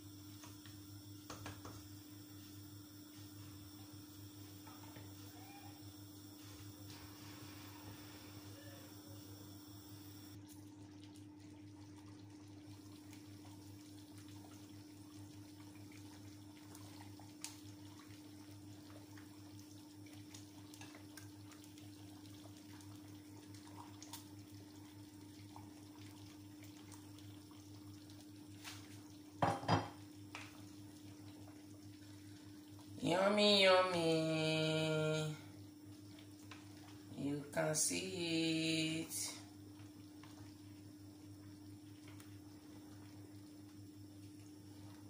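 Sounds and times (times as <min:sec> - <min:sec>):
steady low hum: 0:00.0 - 0:28.5.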